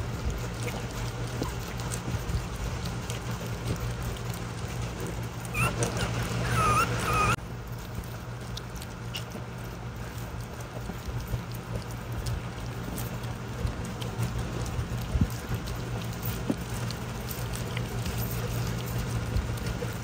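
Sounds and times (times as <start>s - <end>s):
puppies eating and lapping: 0.0s - 20.0s
puppy whines: 5.4s - 7.4s.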